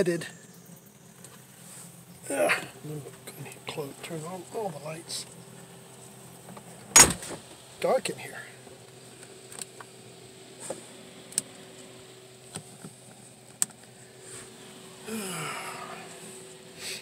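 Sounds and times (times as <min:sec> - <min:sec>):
faint steady hum: 0:00.0 - 0:17.0
short falling vocal sound: 0:15.0 - 0:16.1.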